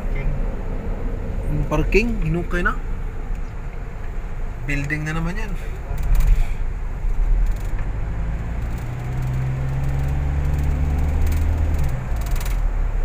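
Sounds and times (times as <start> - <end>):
car road and engine noise: 0.0 - 13.0
low droning hum: 5.5 - 13.0.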